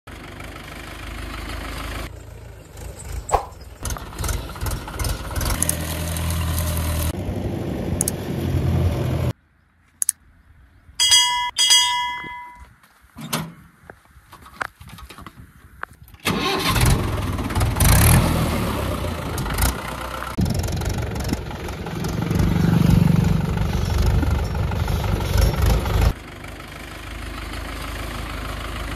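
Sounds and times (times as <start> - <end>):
tractor diesel engine running: 0.1 - 9.3, 11.0 - 12.6, 16.2 - 28.9
click: 10.0 - 10.2
ringing chime tones: 11.0 - 12.7.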